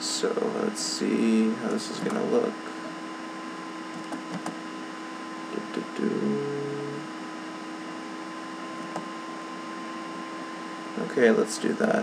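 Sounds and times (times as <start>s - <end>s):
electrical hum: 0.0s - 12.0s
mouse clicks: 3.9s - 4.6s
brief low tone: 5.5s - 7.1s.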